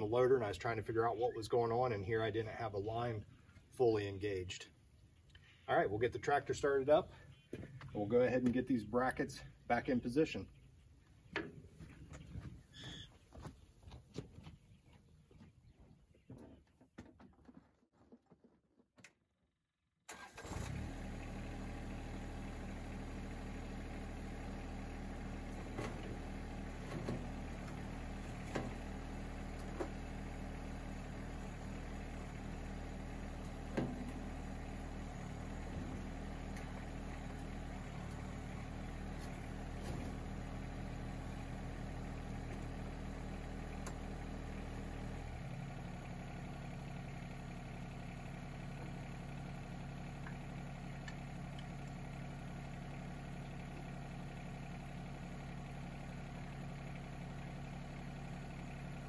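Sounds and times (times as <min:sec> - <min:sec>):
diesel tractor engine idling: 0:20.1 - 0:59.0.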